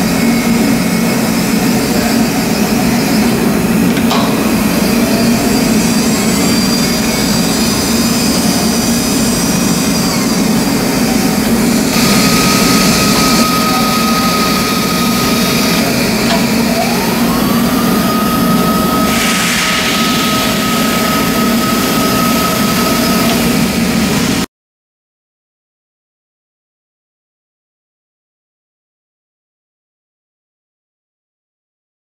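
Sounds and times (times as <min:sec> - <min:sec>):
high motor whine: 0:00.0 - 0:24.5
milling machine humming: 0:00.0 - 0:24.5.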